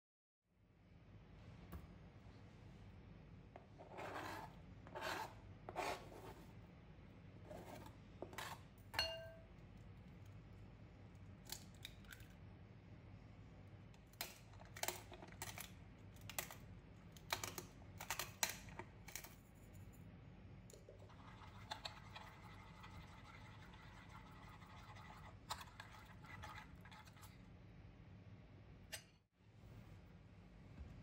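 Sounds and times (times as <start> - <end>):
fork beating eggs in a bowl: 20.8 - 27.4.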